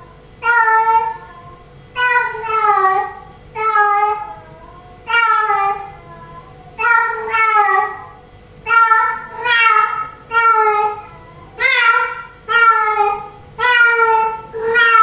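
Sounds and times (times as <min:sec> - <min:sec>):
cat meowing loudly: 0:08.6 - 0:15.0.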